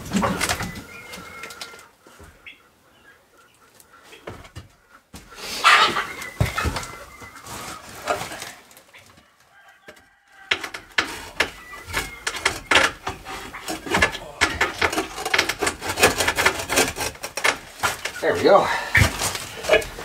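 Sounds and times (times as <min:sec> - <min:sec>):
chickens clucking: 0:00.0 - 0:20.0
sharp knocks and clatter: 0:10.5 - 0:18.2.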